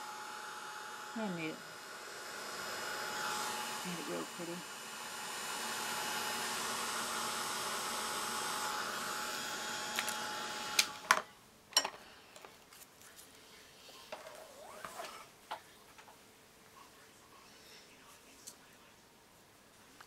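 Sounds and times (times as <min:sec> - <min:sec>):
hair dryer blowing: 0:00.0 - 0:11.1.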